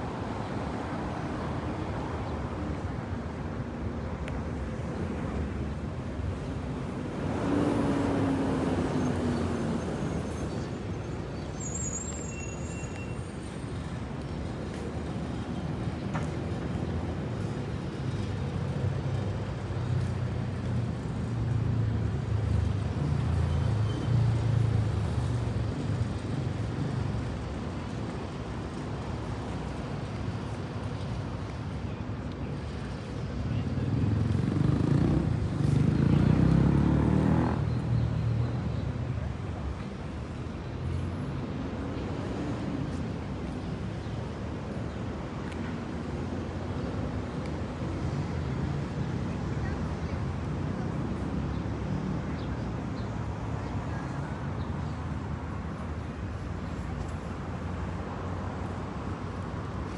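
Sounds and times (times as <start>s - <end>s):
street traffic rumble: 0.0s - 59.9s
vehicle engine passing: 34.1s - 37.6s.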